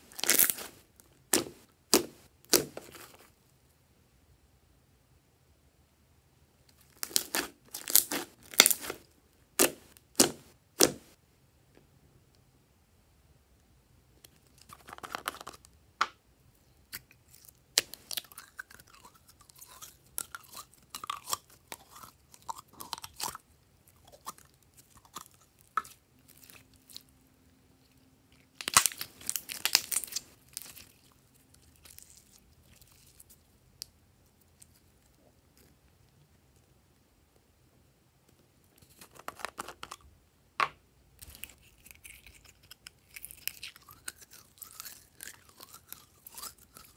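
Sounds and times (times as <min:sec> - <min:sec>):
sticky slime squishing: 0:00.0 - 0:03.2, 0:06.8 - 0:09.0, 0:28.4 - 0:33.5.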